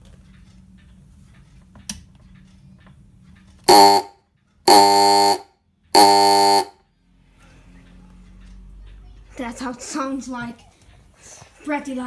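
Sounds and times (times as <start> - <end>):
low steady hum: 2.3 - 8.8
electric horn buzzing blasts: 3.7 - 6.8.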